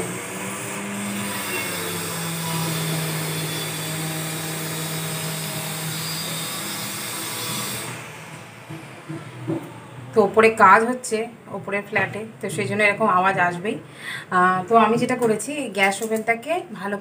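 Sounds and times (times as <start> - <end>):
power tool humming: 0.0 - 9.2.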